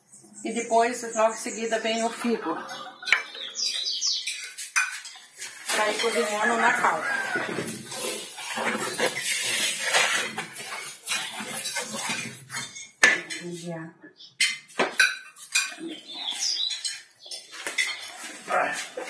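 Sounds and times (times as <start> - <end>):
utensils scraping a cooking pot: 4.4 - 13.6.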